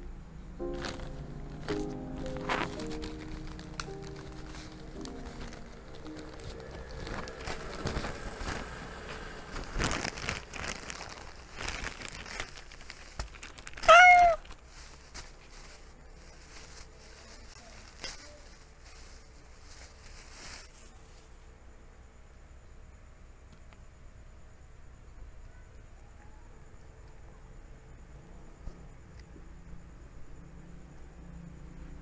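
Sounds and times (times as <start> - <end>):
cat meowing: 13.8 - 14.5.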